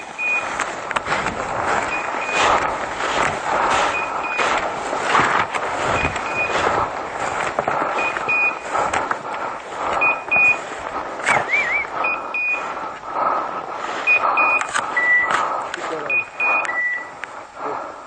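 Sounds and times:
electronic double beeps: 0.0 - 0.5, 1.8 - 2.6, 5.9 - 6.6, 8.0 - 8.6, 11.2 - 12.6, 16.0 - 17.2
footsteps through undergrowth: 0.0 - 16.5.

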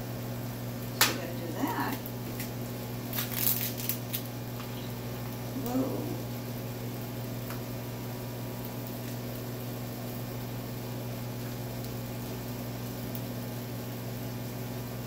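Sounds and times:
microwave oven humming: 0.0 - 15.0.

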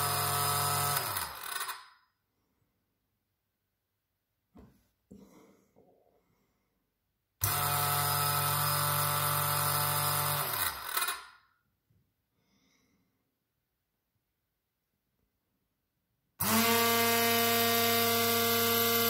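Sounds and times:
stick blender motor whining: 0.0 - 1.9, 7.4 - 11.4, 16.4 - 19.0.

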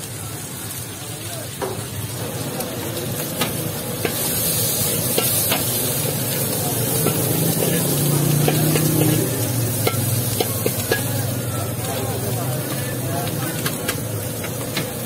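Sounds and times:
vegetables sizzling in a wok: 0.0 - 15.0
metal spatula scraping wok: 3.2 - 11.8
metal clinks against wok: 5.1 - 5.8, 6.9 - 11.4.

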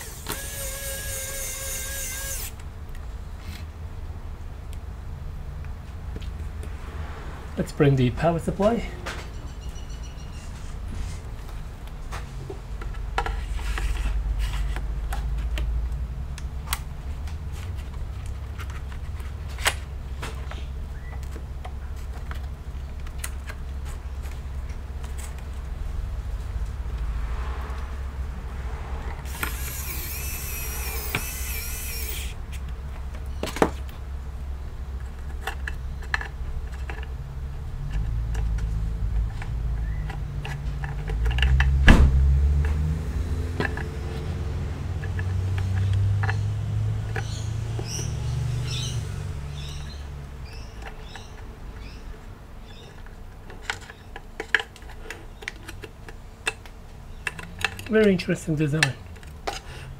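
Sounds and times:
electric screwdriver whining: 0.0 - 2.6, 29.3 - 32.4
clicks of small metal parts: 43.6 - 43.9, 45.0 - 48.0, 52.7 - 59.7.

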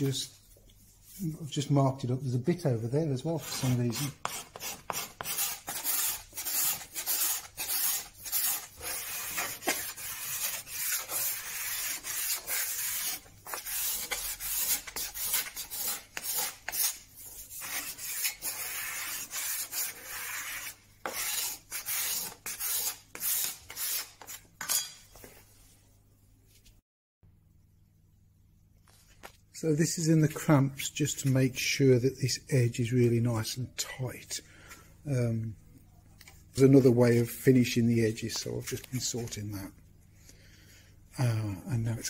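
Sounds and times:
hand plane shaving wood: 3.4 - 24.3.

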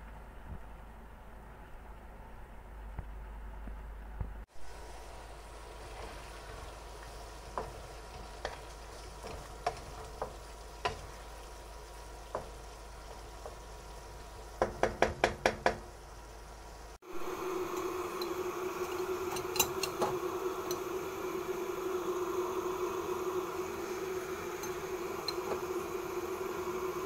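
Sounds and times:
stir-fry sizzling in a pan: 4.5 - 27.0
spatula knocking against pan: 14.6 - 15.8
steady hum: 16.0 - 27.0.

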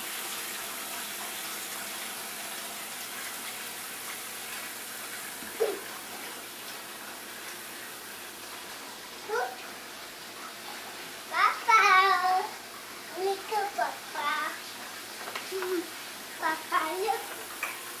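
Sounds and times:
toddler vocal sound: 5.6 - 5.9, 9.2 - 9.6, 15.5 - 17.3.

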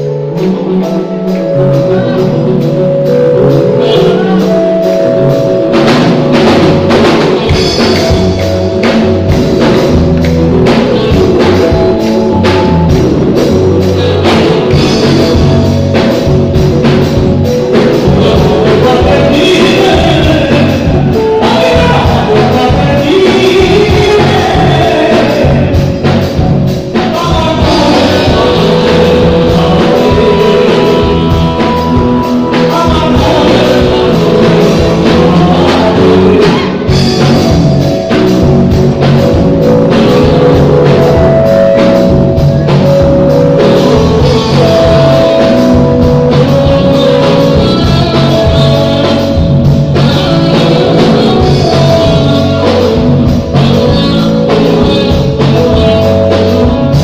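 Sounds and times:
drum kit: 0.0 - 57.0
electric guitars: 0.0 - 57.0
person singing: 0.0 - 57.0.

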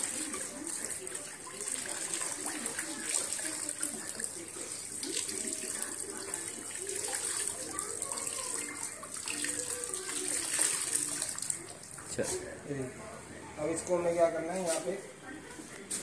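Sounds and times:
water trickling and splashing into tub: 0.0 - 12.4.

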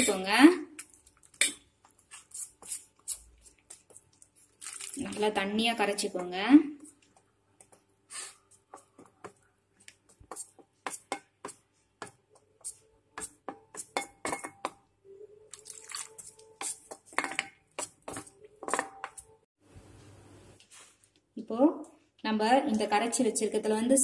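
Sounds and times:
batter being stirred: 0.8 - 14.8, 15.5 - 19.5
spoon tapping metal bowl: 13.5 - 14.8, 16.6 - 19.3.

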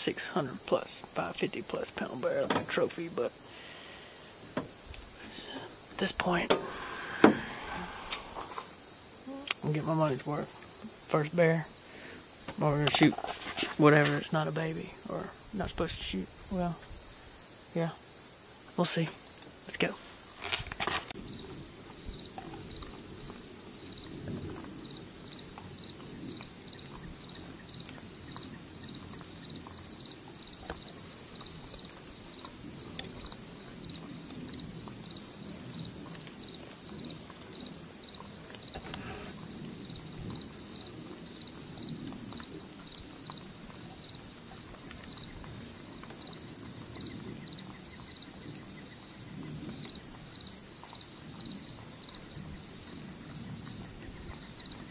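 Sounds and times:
insects buzzing: 0.0 - 54.9
low rustle: 3.5 - 11.0
sharp knocks: 6.2 - 8.2.

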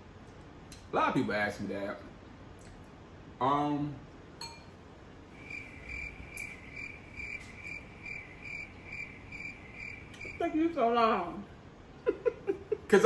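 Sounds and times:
cricket chirping: 5.3 - 10.6.

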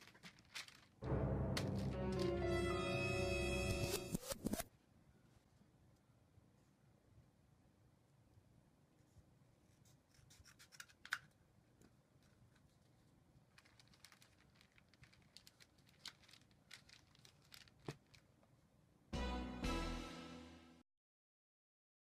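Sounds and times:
rustling and scratching: 0.0 - 1.0, 12.2 - 18.4
loud music: 1.0 - 4.1, 19.2 - 20.8.

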